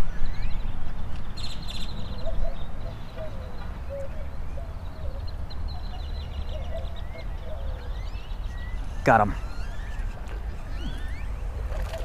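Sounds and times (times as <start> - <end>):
bird low wavering calls: 1.4 - 12.0
bird rapid high trill: 7.9 - 12.0
wind rumbling on microphone: 8.3 - 12.0.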